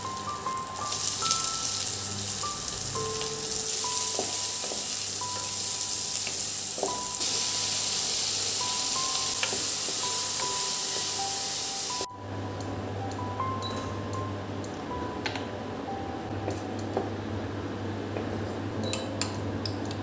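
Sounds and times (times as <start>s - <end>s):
onions and tomatoes sizzling in oil: 0.0s - 12.1s
soft background music: 0.0s - 20.0s.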